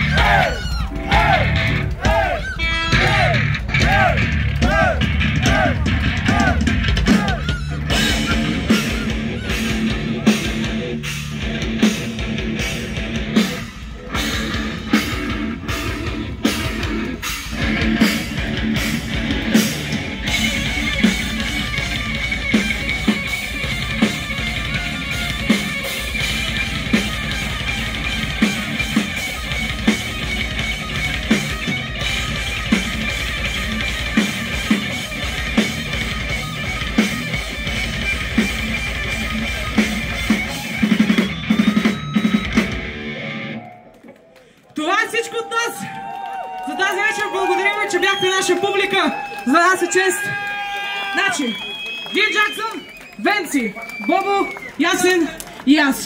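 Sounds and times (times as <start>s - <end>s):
drum kit steady beat: 0.0s - 43.0s
distorted electric guitars: 0.0s - 43.8s
live heavy rock band: 0.0s - 43.8s.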